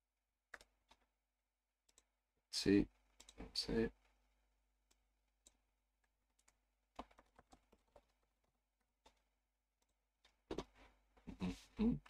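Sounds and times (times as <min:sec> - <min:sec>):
keyboard typing: 0:06.3 - 0:08.2.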